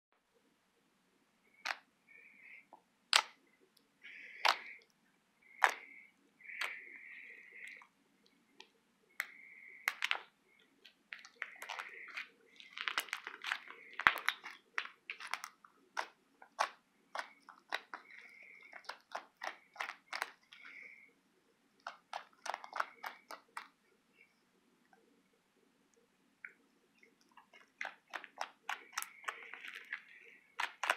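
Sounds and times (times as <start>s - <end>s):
slime clicking and squishing: 3.1s - 3.4s, 4.1s - 7.9s, 9.2s - 21.0s, 21.8s - 23.8s, 26.4s - 30.9s.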